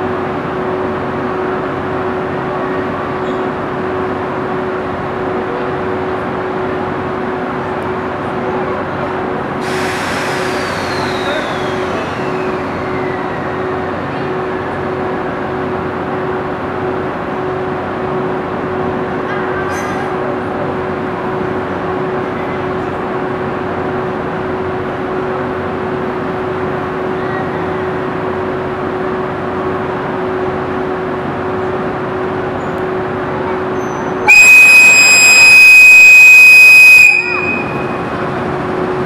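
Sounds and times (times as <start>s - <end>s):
loud high locomotive whistle: 9.7s - 13.7s, 34.2s - 38.3s
train humming: 20.5s - 39.0s.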